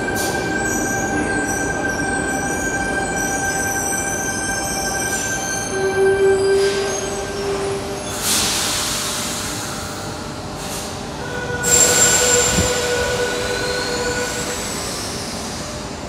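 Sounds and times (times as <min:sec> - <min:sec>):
train rumble echoing: 0:11.0 - 0:16.0.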